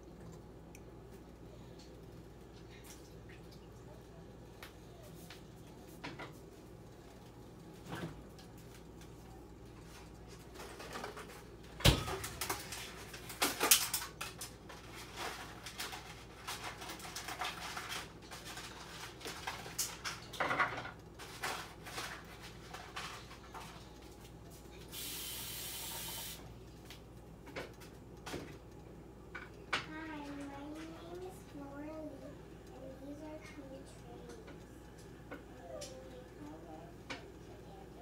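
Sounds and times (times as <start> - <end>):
kitchen items knocking and clicking: 10.5 - 23.8
steady hiss: 24.8 - 26.5.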